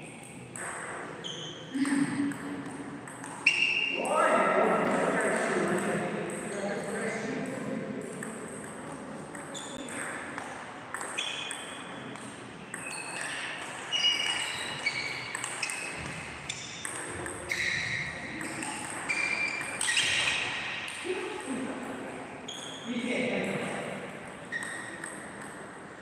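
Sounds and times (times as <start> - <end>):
table tennis ball hits: 0.2 - 1.2, 1.9 - 3.9, 8.0 - 21.0.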